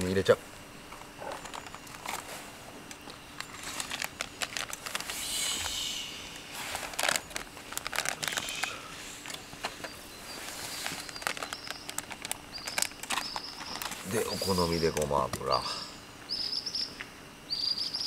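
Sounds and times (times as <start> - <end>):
plastic packet crinkling: 1.2 - 2.3, 3.3 - 5.2, 6.6 - 9.7, 10.4 - 15.1.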